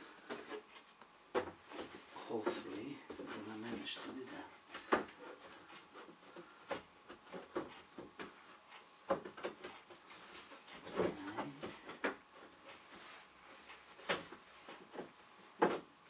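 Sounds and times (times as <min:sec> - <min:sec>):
panels knocking and clicking: 0:04.8 - 0:12.9.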